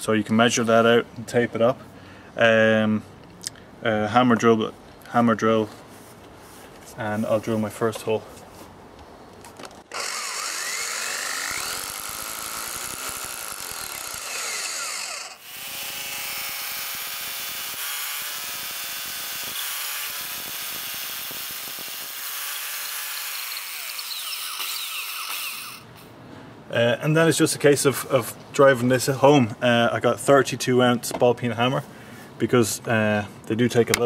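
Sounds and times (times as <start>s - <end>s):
hammer drill boring into wall: 9.9s - 25.9s.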